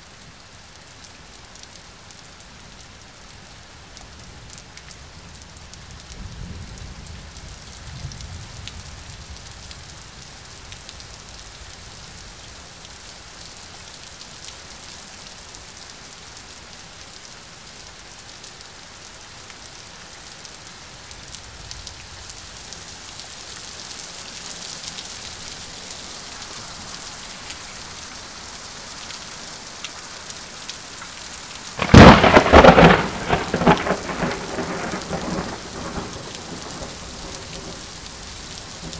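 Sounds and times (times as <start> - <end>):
steady rain: 0.0 - 38.9
close thunder crack: 31.8 - 37.8
distant thunder rumble: 31.8 - 37.9.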